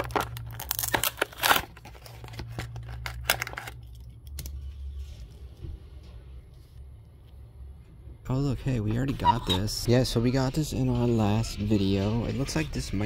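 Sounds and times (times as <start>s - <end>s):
plastic packaging crinkling and tearing: 0.0s - 5.0s
low steady hum: 0.0s - 13.0s.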